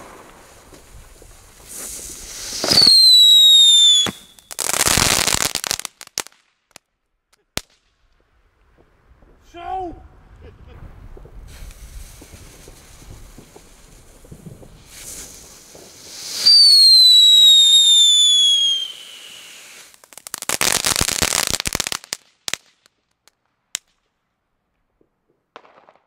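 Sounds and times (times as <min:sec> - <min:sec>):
single firework pops: 0:00.0 - 0:03.2, 0:03.8 - 0:05.5, 0:11.0 - 0:18.4, 0:25.0 - 0:26.0
fizz of firework sparks: 0:00.0 - 0:06.2, 0:10.7 - 0:22.8
firework crackling: 0:00.0 - 0:06.8, 0:10.3 - 0:24.1
firework whistle falling in pitch: 0:02.6 - 0:04.6, 0:16.3 - 0:19.6.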